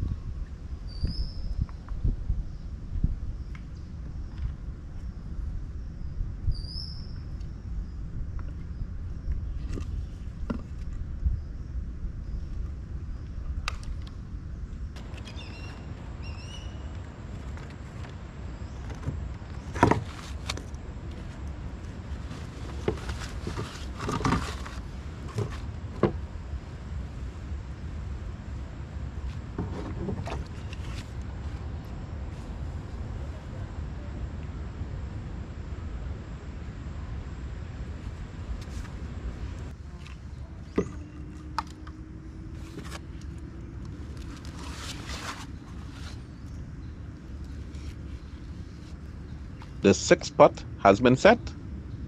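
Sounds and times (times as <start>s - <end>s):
steady low rumble: 0.0s - 52.0s
rope and netting rustling: 16.8s - 26.2s, 42.5s - 46.6s
knocks and rustling of gear: 22.2s - 26.2s.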